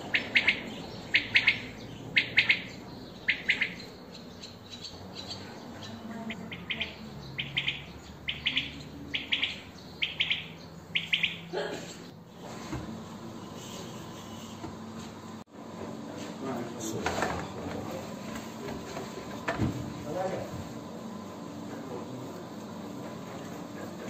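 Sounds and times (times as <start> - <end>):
songbird chirping: 0.0 - 11.5.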